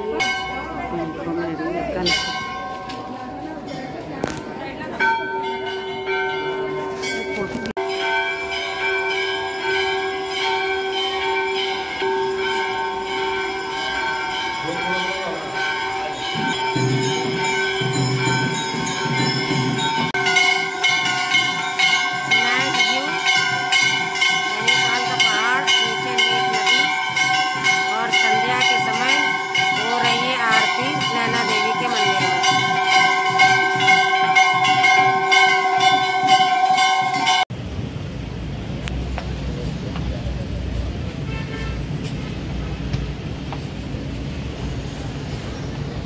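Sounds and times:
temple bells ringing: 0.0s - 37.6s.

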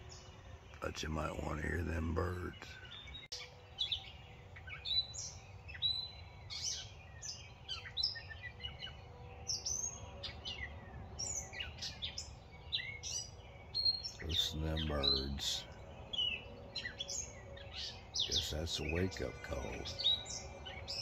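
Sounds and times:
songbirds singing and calling: 0.0s - 21.0s.

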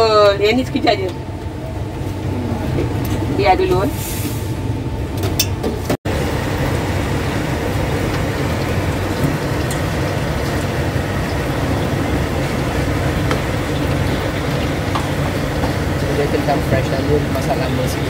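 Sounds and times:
low hum: 0.0s - 17.2s
fries sizzling in oil: 6.1s - 18.0s.

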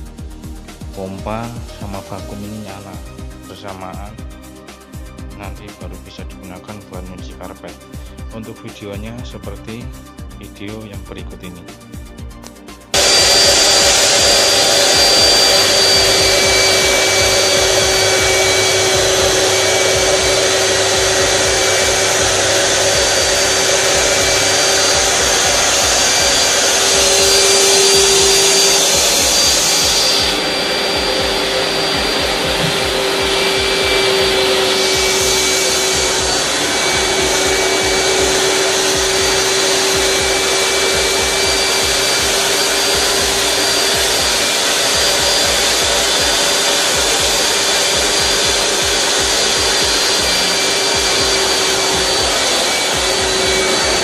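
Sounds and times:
carpet extraction machine whining: 13.0s - 54.0s
rotating brush on carpet: 13.0s - 54.0s.

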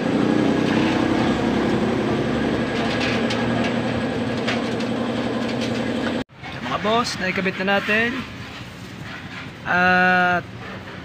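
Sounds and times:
machine engine drone: 0.0s - 6.2s.

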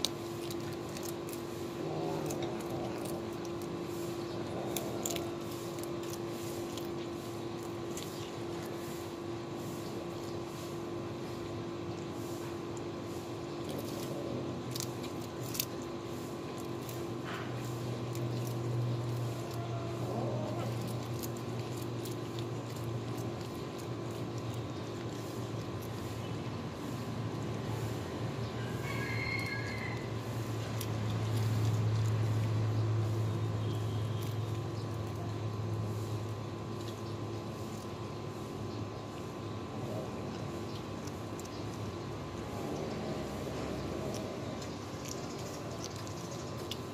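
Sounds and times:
kittens crunching shrimp shells: 0.0s - 46.9s
steady low hum: 0.0s - 46.9s.

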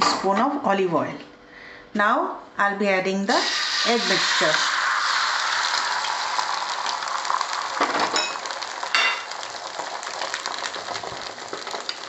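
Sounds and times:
egg sizzling in frying pan: 3.4s - 12.0s.

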